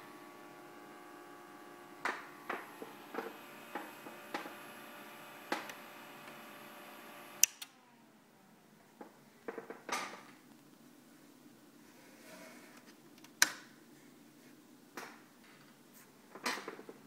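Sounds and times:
electronics multi-tone hum: 0.0s - 8.4s.

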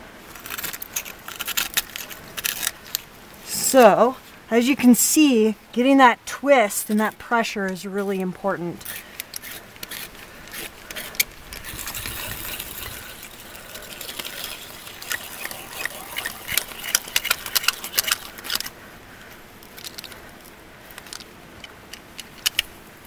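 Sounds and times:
ice screw crunching and clicking: 0.3s - 3.1s, 8.8s - 18.8s, 19.6s - 22.8s.

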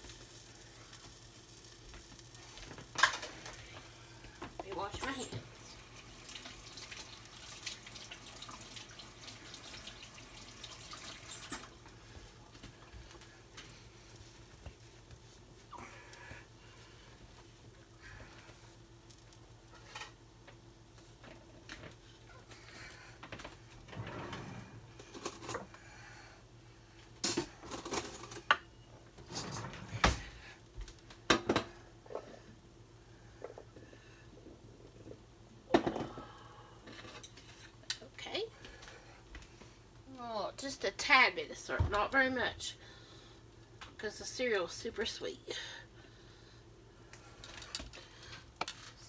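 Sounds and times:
water splashing in sink: 4.7s - 11.8s.

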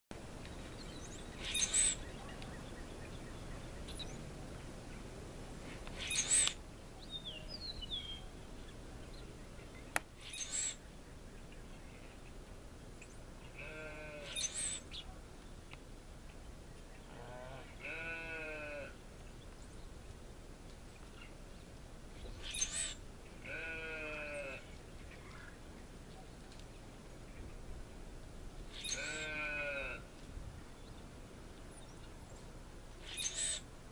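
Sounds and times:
outdoor background noise: 0.1s - 33.9s
harsh high bird calls: 1.4s - 2.8s, 6.0s - 6.6s, 10.2s - 10.8s, 13.6s - 15.0s, 22.4s - 24.6s, 28.7s - 30.0s, 33.0s - 33.7s
sheep bleating: 13.6s - 14.4s, 17.2s - 19.0s, 23.4s - 24.6s, 29.0s - 30.0s.

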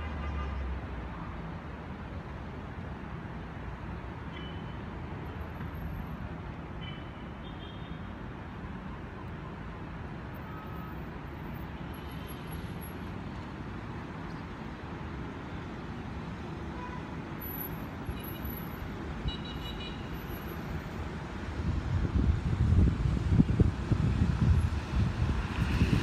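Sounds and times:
distant city traffic: 0.0s - 26.0s
wind buffeting microphone: 21.6s - 26.0s.

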